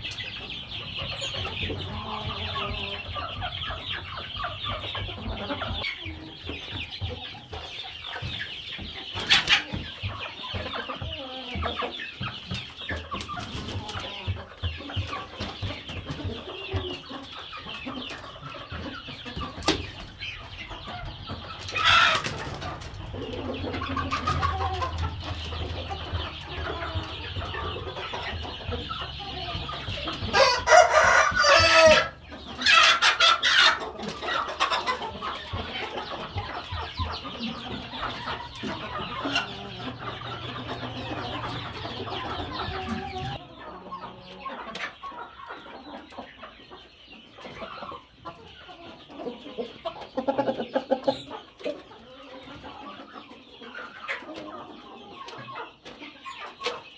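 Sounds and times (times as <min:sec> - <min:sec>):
chickens clucking: 0:00.0 - 0:56.9
rooster crowing: 0:30.4 - 0:32.1.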